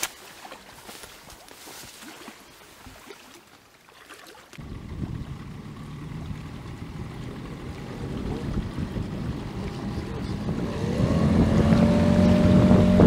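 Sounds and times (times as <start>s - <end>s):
light footsteps: 0.0s - 3.1s
rustling leaves and twigs: 0.0s - 3.7s
water rushing along hull: 0.0s - 13.0s
outboard motor droning: 4.6s - 13.0s
wind on microphone: 4.6s - 13.0s.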